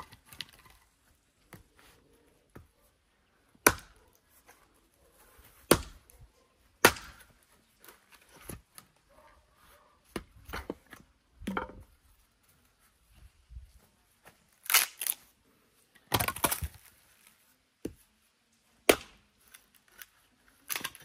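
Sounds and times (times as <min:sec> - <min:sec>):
axe chopping firewood: 0:03.5 - 0:04.6, 0:05.4 - 0:08.9, 0:10.1 - 0:11.8, 0:16.1 - 0:16.9, 0:18.8 - 0:19.3, 0:20.7 - 0:21.0.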